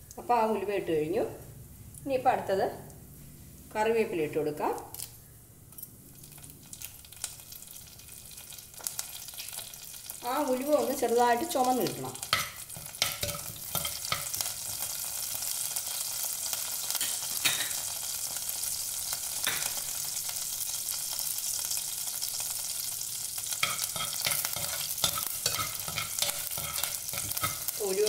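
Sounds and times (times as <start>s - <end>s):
seeds sizzling in hot oil: 6.1s - 28.0s
metal spatula scraping clay pot: 23.6s - 27.9s.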